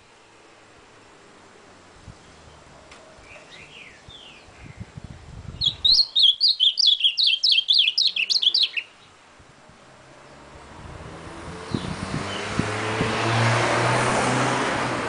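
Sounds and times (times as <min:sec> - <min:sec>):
bird singing whistled notes: 0:03.2 - 0:04.9, 0:05.5 - 0:09.2.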